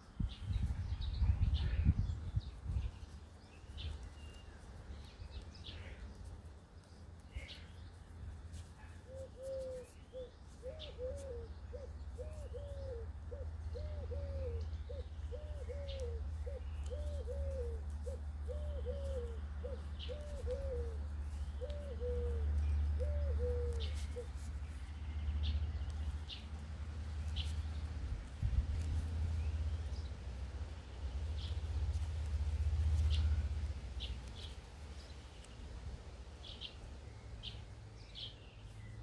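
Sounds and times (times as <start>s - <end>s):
small birds chirping: 0.0s - 39.0s
pigeon cooing: 9.0s - 24.4s
steady low rumble: 24.0s - 37.3s.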